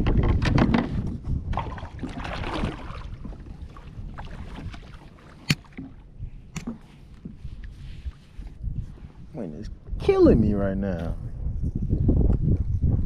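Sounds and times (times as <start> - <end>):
water lapping at a kayak: 0.0 - 9.3
wind buffeting microphone: 0.0 - 13.0.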